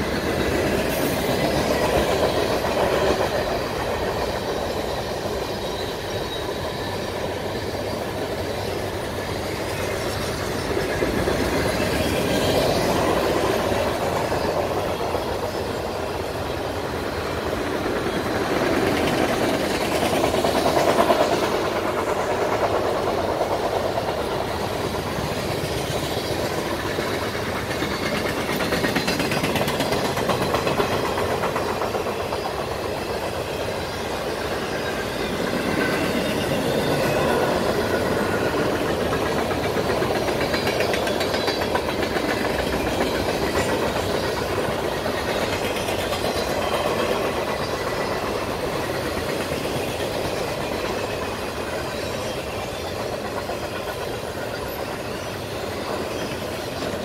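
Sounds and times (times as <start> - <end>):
train cars rumbling on track: 0.0 - 57.0.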